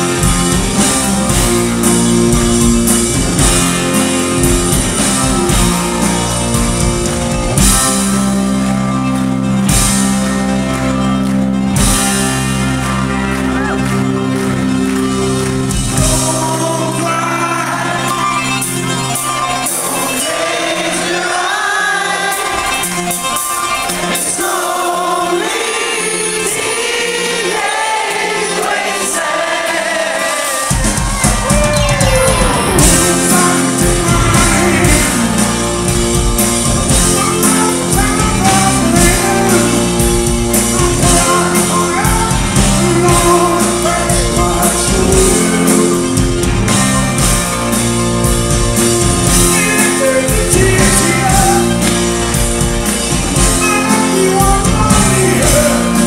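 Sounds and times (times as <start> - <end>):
live rock band playing: 0.0 - 56.0
man singing lead: 15.8 - 27.7, 28.3 - 36.0, 36.9 - 46.5, 49.3 - 52.1, 53.1 - 56.0.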